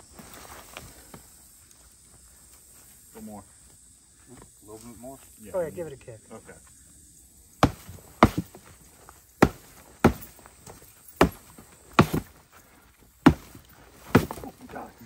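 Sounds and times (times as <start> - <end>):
boots kicking bamboo thuds: 7.6 - 15.0.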